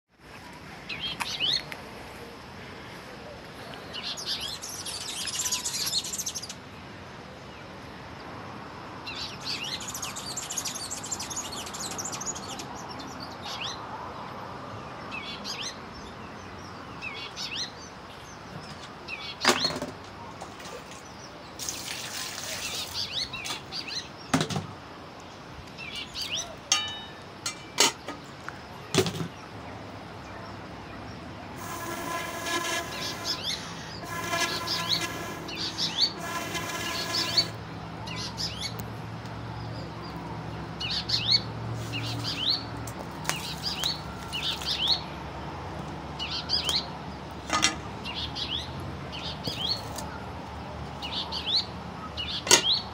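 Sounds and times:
small birds chirping: 3.9s - 6.6s, 9.0s - 13.8s, 15.2s - 24.4s, 25.2s - 45.2s
drawn-out pitched sound: 31.6s - 37.6s.

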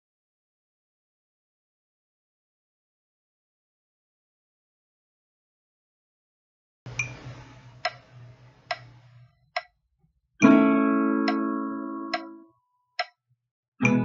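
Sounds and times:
metronome ticking: 7.8s - 8.1s, 8.7s - 9.0s, 10.4s - 13.1s
acoustic guitar chord strum: 10.4s - 12.5s, 13.8s - 14.0s.

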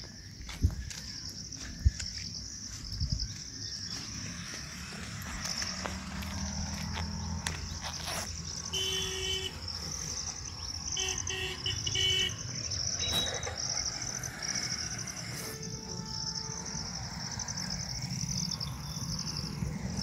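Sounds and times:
insects trilling: 0.0s - 20.0s
horn-like toots: 15.1s - 17.1s.

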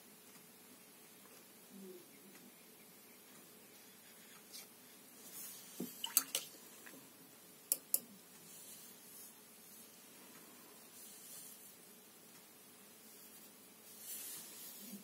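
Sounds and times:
brush splashing in water: 5.8s - 6.5s.

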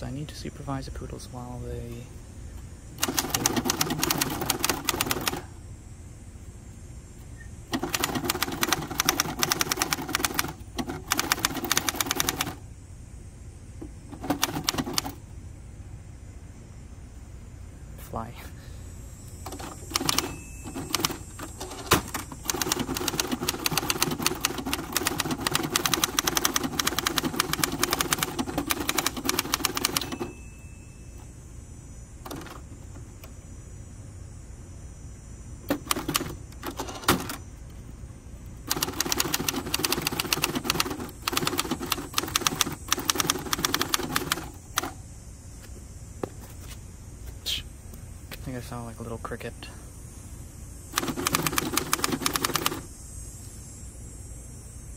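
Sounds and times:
manual typewriter keystrokes: 3.0s - 5.5s, 7.7s - 12.6s, 14.1s - 15.2s, 19.4s - 30.4s, 32.2s - 32.7s, 35.7s - 37.4s, 38.7s - 45.0s, 51.0s - 52.8s.

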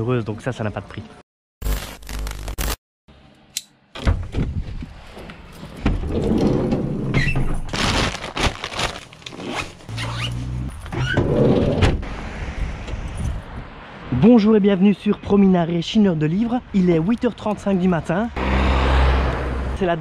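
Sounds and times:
short squeaks: 9.6s - 11.2s.

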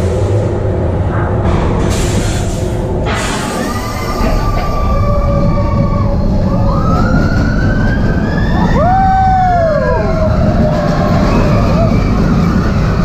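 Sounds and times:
roller coaster rumbling on track: 0.0s - 13.0s
riders screaming: 4.0s - 13.0s.

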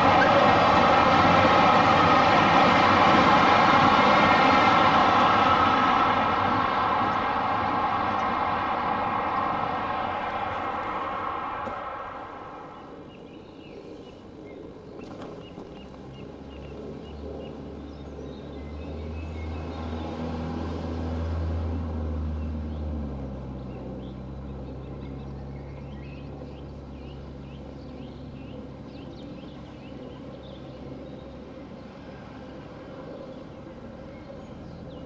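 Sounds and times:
birds chirping: 0.0s - 20.2s
low engine drone: 0.0s - 35.0s.

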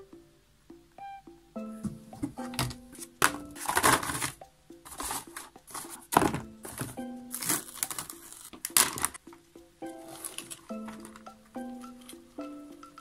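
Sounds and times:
plucked-string background music: 0.0s - 13.0s
cardboard and plastic crinkling: 2.4s - 9.2s, 10.1s - 11.2s.

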